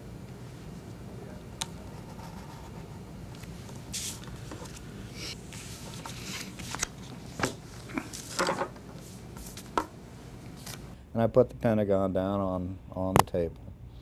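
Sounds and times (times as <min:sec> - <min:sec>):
low room hum: 0:00.0 - 0:14.0
paper rustling: 0:03.9 - 0:08.5.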